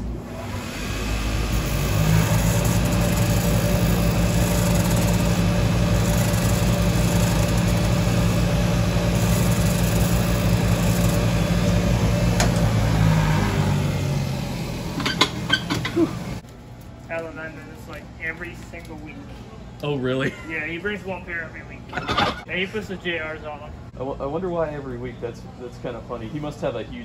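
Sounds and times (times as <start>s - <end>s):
machine motor humming: 0.0s - 16.4s.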